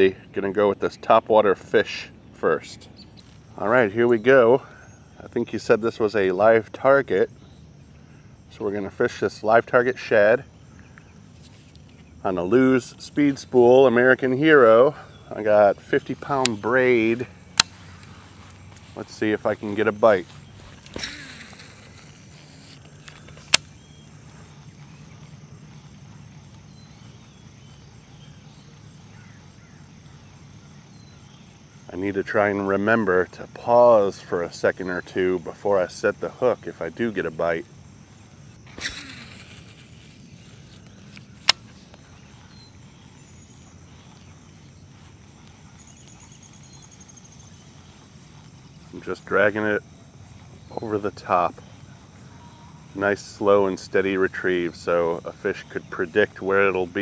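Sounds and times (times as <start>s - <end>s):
insects: 0.0s - 57.0s
faint bird chirps: 2.1s - 6.4s, 13.8s - 32.8s, 38.0s - 56.9s
sharp click: 23.1s - 23.8s
fishing reel cranking: 38.7s - 40.8s.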